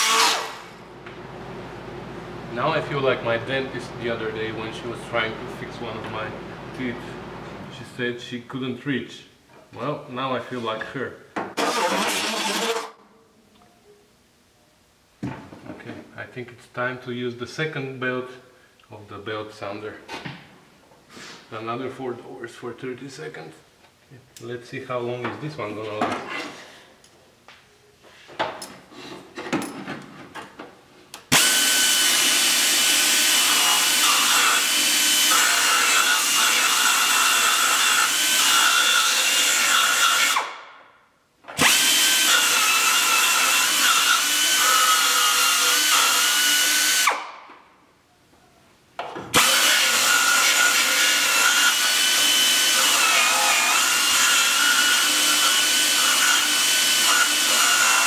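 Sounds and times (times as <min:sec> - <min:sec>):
belt sander grinding metal: 0:00.0 - 0:00.8, 0:31.3 - 0:40.4, 0:41.6 - 0:47.1, 0:49.4 - 0:58.0.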